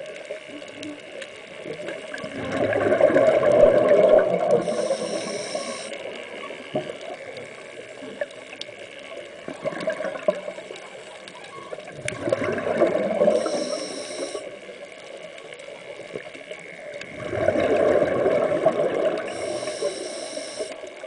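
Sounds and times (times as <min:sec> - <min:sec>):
scuba regulator breathing underwater: 0:02.5 - 0:06.0, 0:13.1 - 0:14.6, 0:17.5 - 0:20.9.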